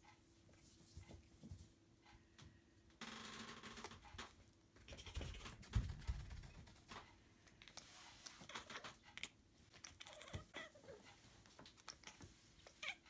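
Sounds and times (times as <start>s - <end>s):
paws pattering and scratching: 4.2s - 13.0s.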